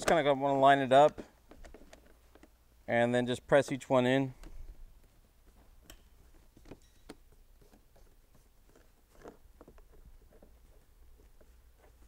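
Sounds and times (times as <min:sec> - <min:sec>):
faint tapping and rubbing: 0:04.4 - 0:12.0.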